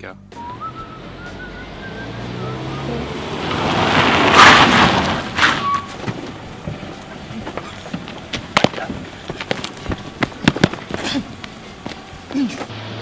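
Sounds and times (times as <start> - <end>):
footsteps on asphalt: 4.8 - 12.7.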